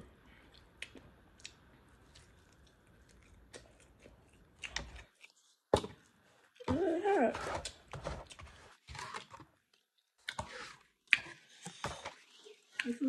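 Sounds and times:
chewing and mouth clicks: 0.4 - 5.5.

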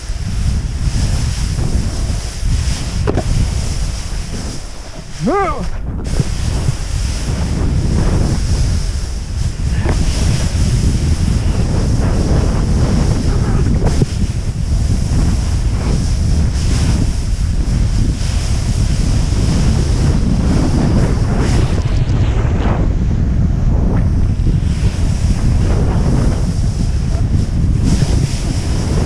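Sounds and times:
snowboard scraping through snow: 0.0 - 29.0
wind on microphone: 0.0 - 29.0.

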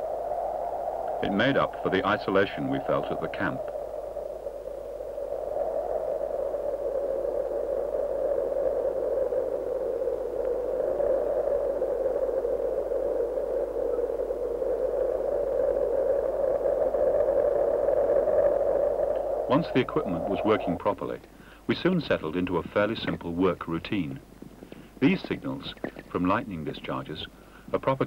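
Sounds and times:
wind rushing: 0.0 - 21.9.

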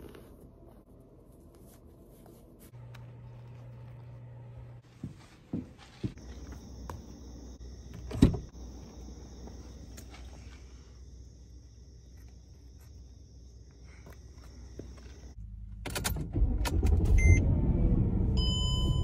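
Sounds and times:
low steady hum: 0.0 - 15.8
crickets chirping: 5.8 - 15.4.

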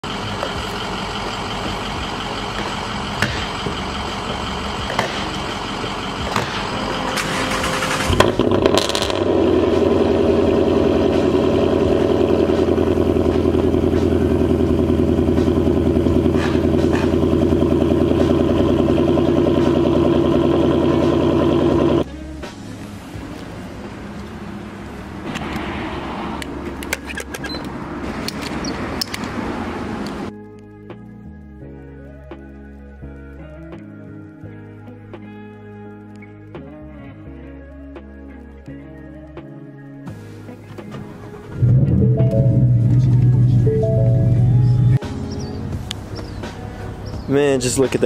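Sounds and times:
engine idling: 0.0 - 22.0, 41.4 - 47.0
engine firing with loud flare: 0.1 - 22.0
engine cranking: 0.2 - 22.0.

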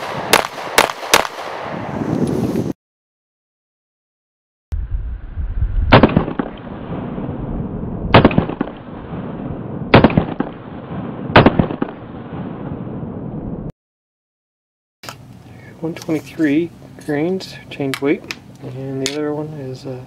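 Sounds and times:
pistol shots echoing: 0.0 - 1.6, 8.1 - 8.9, 9.9 - 12.2.

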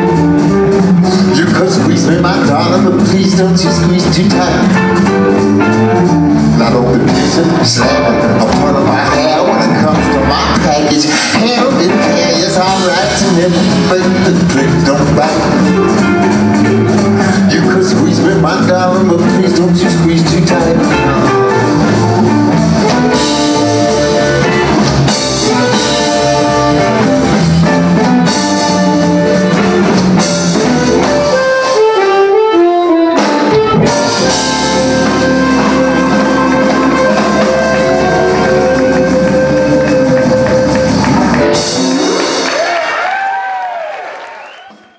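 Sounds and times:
electric guitar: 0.0 - 43.4
drums: 0.0 - 44.9
harmonica: 18.4 - 42.2.

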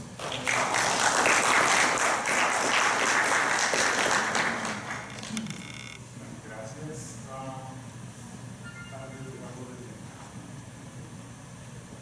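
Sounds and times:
audience applauding: 0.2 - 5.3.

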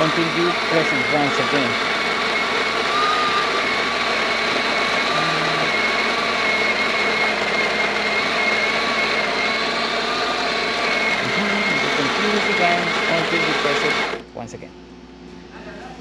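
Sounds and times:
coffee grinder running: 0.0 - 14.3.

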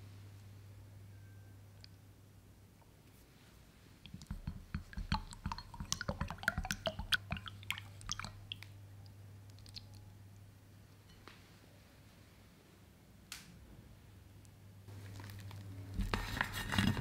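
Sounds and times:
stick stirring liquid in glass bowl: 4.0 - 8.7.

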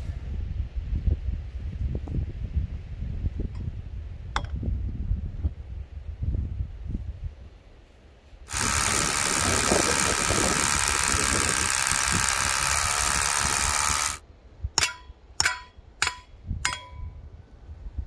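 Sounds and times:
electric drill boring into wood: 8.5 - 14.2
hammer strikes with metallic ring: 14.8 - 17.1.

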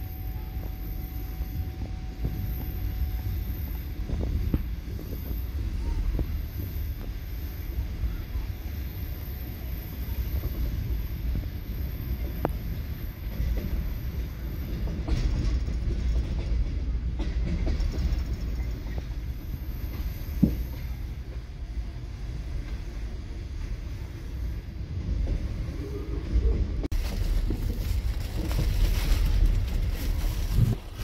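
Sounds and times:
train rumbling on rails: 0.0 - 31.0.

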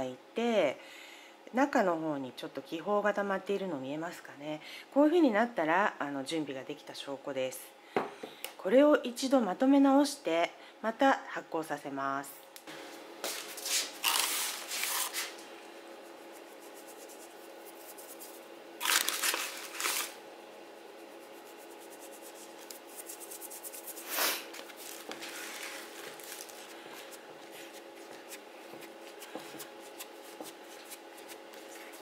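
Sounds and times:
faint steady hum: 0.0 - 32.0
hands working sticky dough: 13.3 - 32.0.

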